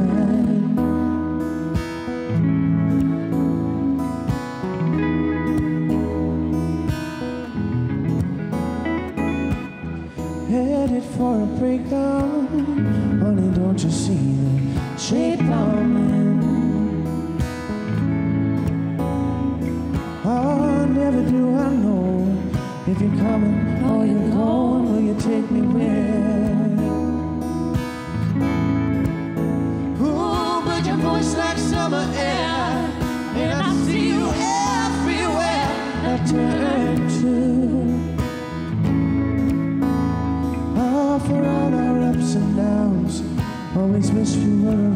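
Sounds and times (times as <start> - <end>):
acoustic guitar strumming: 0.0 - 44.9
electric guitar: 0.0 - 44.9
man and woman singing in harmony: 30.0 - 38.1.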